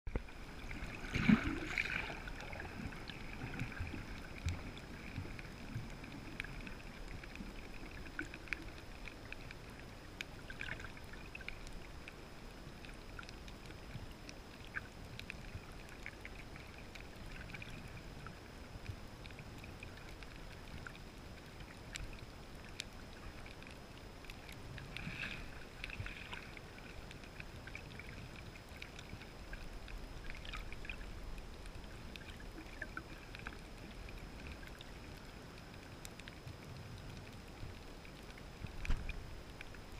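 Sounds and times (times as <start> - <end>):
faint clicks and crackles: 0.1 - 39.9
rush of water noise: 0.1 - 39.9.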